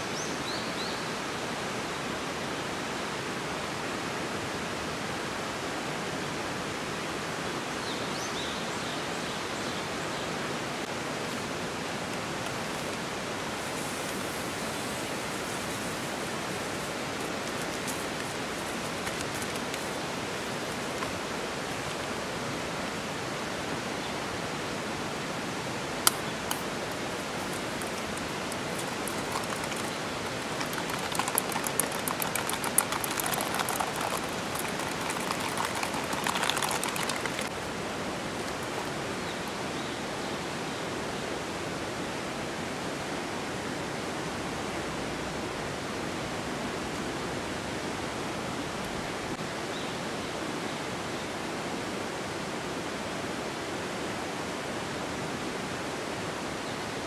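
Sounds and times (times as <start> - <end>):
heavy rain hissing: 11.6 - 21.8
crackling and clattering: 26.1 - 37.6.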